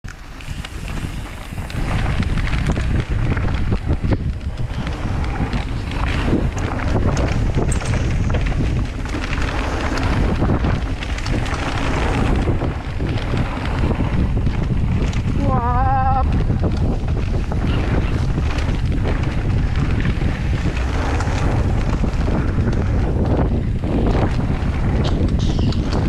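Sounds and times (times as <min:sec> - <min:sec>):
bike tyres and rattles clicking: 0:00.0 - 0:26.0
wind buffeting microphone: 0:00.0 - 0:26.0.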